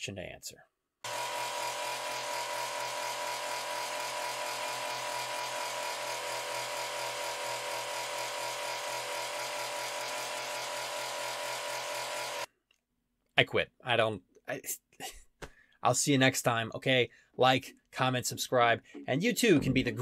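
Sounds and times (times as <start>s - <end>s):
drill motor high tone: 1.1s - 12.5s.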